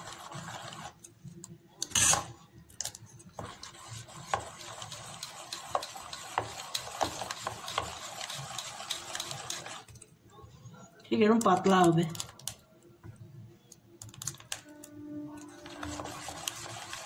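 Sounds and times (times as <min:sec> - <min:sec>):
ladle scraping a steel bowl: 0:15.4 - 0:17.0.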